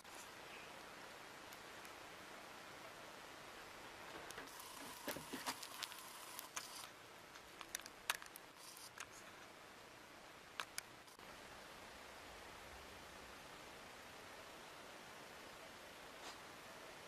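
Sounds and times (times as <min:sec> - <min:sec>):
faint thin whine: 0:00.0 - 0:17.0
low steady hiss: 0:00.0 - 0:17.0.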